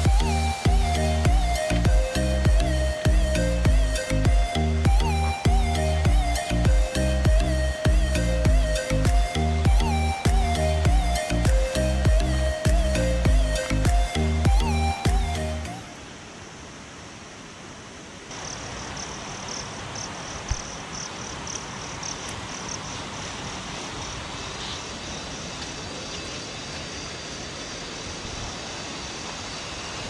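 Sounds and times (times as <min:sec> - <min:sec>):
stream rushing: 0:00.0 - 0:30.0
insect chirping rapidly: 0:18.3 - 0:30.0.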